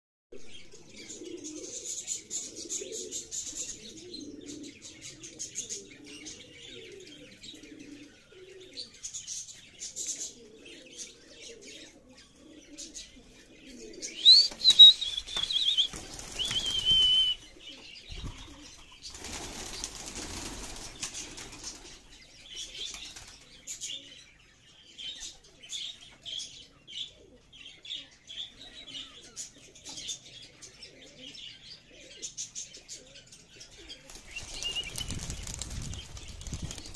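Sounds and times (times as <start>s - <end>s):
pigeons cooing: 0.4s - 36.9s
high falling bird call: 14.0s - 18.6s
wings flapping: 14.2s - 17.4s, 18.1s - 22.0s, 34.0s - 36.9s.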